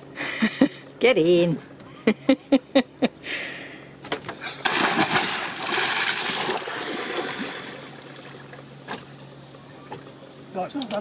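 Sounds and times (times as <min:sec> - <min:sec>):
loud splash into water: 0:04.6 - 0:08.0
splashing and churning water: 0:04.6 - 0:08.7.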